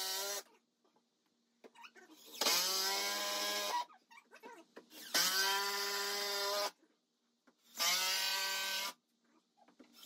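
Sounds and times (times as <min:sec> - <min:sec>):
cordless drill driving screws: 0:05.0 - 0:06.7, 0:07.7 - 0:09.0.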